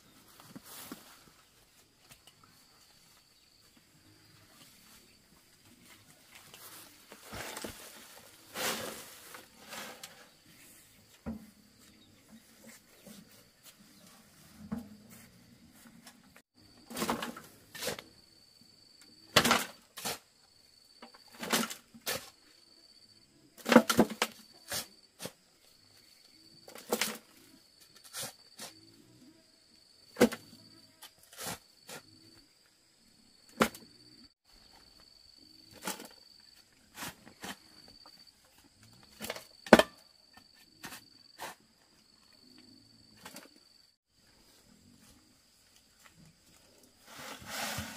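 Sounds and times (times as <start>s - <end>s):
dirt thudding into metal wheelbarrow: 7.1s - 10.3s, 16.8s - 18.0s, 19.3s - 20.2s, 47.1s - 47.9s
shovel scraping soil: 7.2s - 10.4s, 16.9s - 18.1s, 19.9s - 20.2s, 31.2s - 32.0s, 40.8s - 41.6s, 47.0s - 47.9s.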